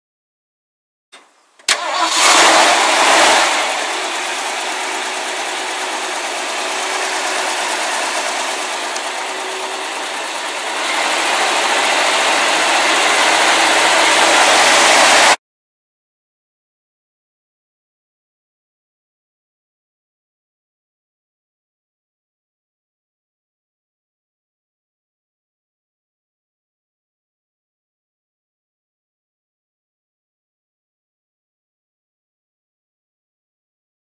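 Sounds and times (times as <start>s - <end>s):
engine starting and idling: 1.2s - 15.4s.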